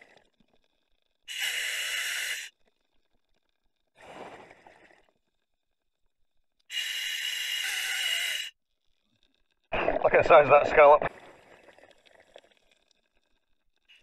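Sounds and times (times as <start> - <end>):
diver inhaling with whistling hiss: 1.3 - 2.5, 6.7 - 8.5.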